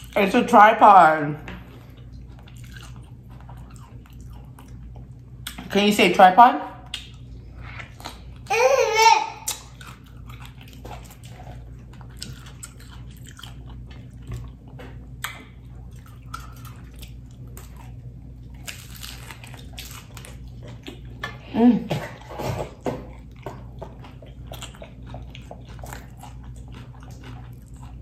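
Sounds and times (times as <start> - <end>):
chewing crisp taco shell: 1.7 - 5.6, 9.5 - 21.5, 22.7 - 28.0.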